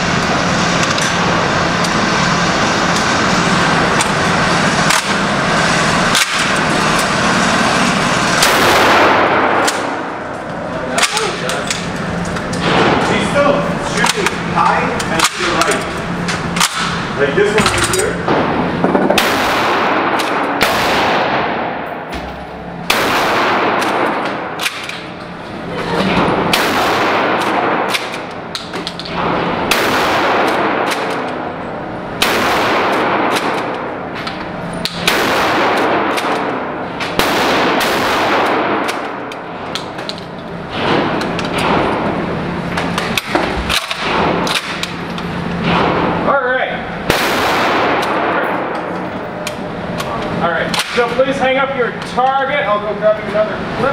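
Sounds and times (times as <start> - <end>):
shotgun blasts echoing indoors: 8.3 - 11.9, 12.6 - 15.8, 17.6 - 25.2, 26.1 - 34.2, 34.8 - 40.0, 40.7 - 45.0, 45.6 - 49.2.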